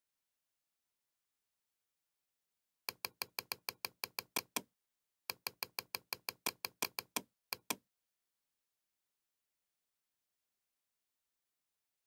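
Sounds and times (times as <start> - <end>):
computer mouse clicks: 2.9 - 4.7, 5.3 - 7.8.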